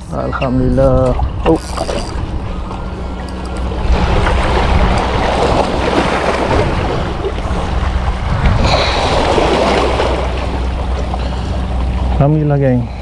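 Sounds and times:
wind buffeting microphone: 0:00.0 - 0:13.0
seawater washing against rocks: 0:03.6 - 0:12.6.

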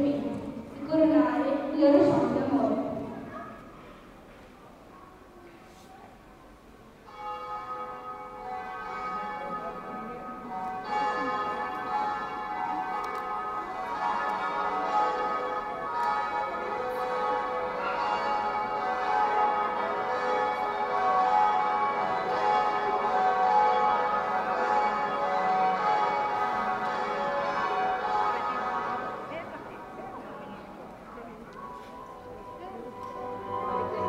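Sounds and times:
bells ringing: 0:07.0 - 0:34.0.

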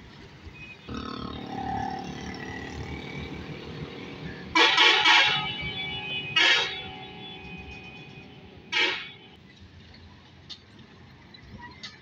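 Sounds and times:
truck engines and traffic hum: 0:00.0 - 0:12.0
truck horn: 0:04.4 - 0:09.4.

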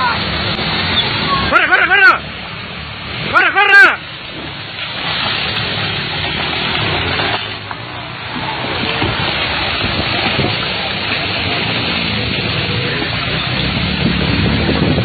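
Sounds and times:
mudslide rushing: 0:00.0 - 0:15.0.

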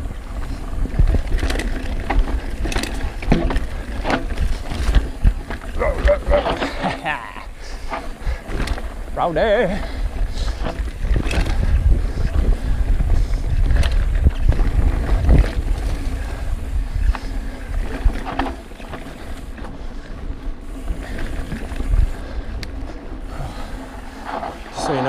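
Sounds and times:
bike tyre rumble on dirt: 0:00.0 - 0:25.0
wind buffeting the microphone: 0:00.0 - 0:25.0
bike knocks and clicks: 0:00.4 - 0:06.8, 0:10.5 - 0:12.3.

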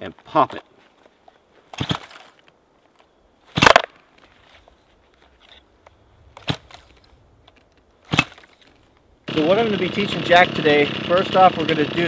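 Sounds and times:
chainsaw starter cord rasps: 0:08.2 - 0:12.0.

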